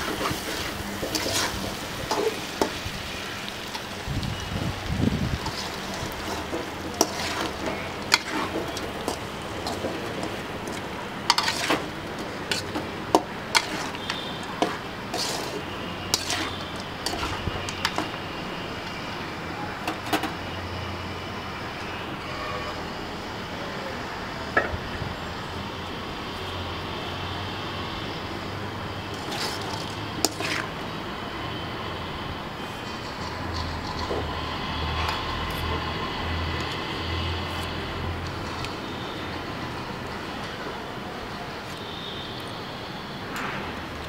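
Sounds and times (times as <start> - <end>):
metal spatula scraping a pan: 0.0 - 2.8, 5.4 - 18.2, 29.1 - 30.8.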